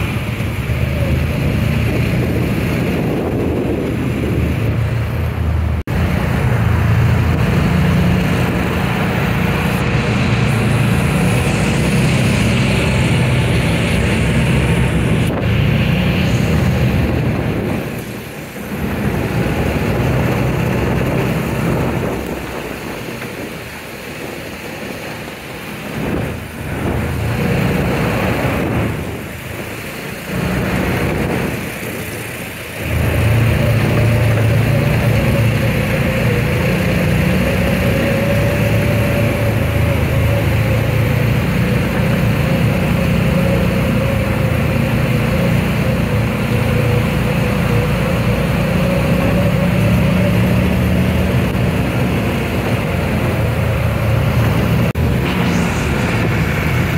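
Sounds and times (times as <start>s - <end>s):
off-road vehicle engine: 0.0s - 56.9s
thin steady whine: 55.0s - 56.9s.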